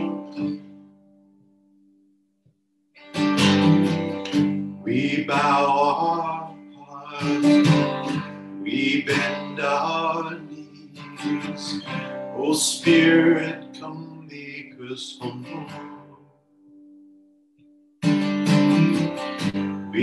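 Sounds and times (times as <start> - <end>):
man singing: 0.0 - 0.6, 4.8 - 16.3
acoustic guitar strummed: 0.0 - 2.1, 2.9 - 20.0.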